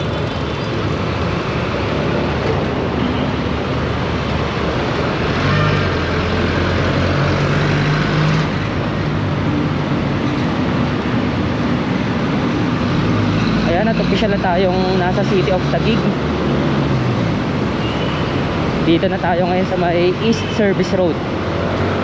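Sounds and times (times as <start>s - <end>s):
road traffic: 0.0s - 22.0s.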